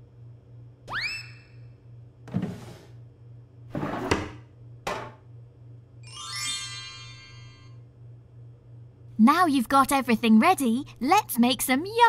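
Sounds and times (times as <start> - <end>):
cartoon drawer sliding swishes: 2.3 - 2.9, 3.7 - 4.3.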